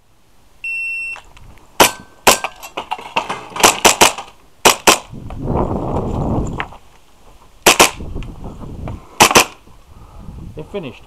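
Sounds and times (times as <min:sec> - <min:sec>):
shot timer beep: 0:00.6 - 0:01.2
airsoft pistol shots: 0:01.8 - 0:02.5, 0:03.6 - 0:05.1, 0:07.6 - 0:08.1, 0:09.2 - 0:09.6.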